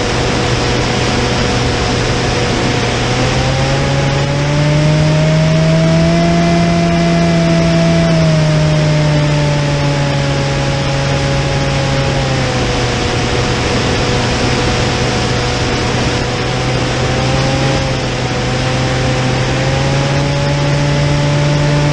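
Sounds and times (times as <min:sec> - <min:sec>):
wind rushing: 0:00.0 - 0:06.1
model aircraft motor running: 0:00.0 - 0:21.9.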